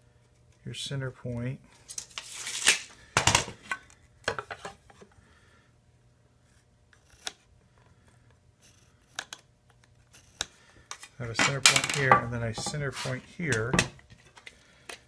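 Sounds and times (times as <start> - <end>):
tape measure blade retracting: 1.9 - 2.9.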